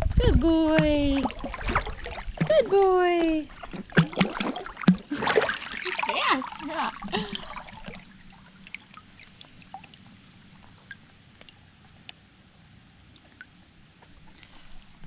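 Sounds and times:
pool water lapping: 0.0s - 15.0s
small drips and splashes: 0.8s - 15.0s.

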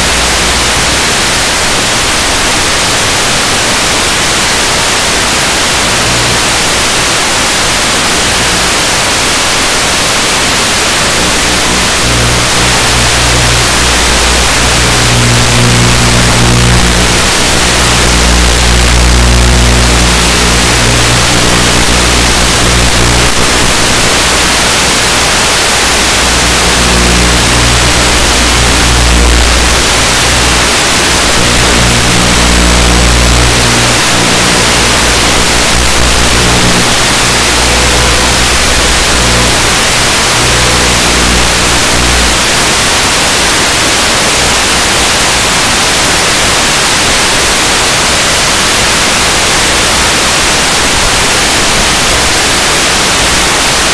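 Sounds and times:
static hiss: 0.0s - 53.9s
low motor hum: 11.1s - 24.3s, 26.1s - 42.4s.

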